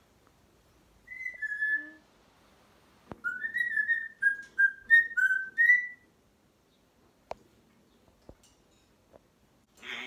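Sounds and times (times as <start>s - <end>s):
parrot whistling: 1.1s - 2.0s, 3.2s - 6.0s.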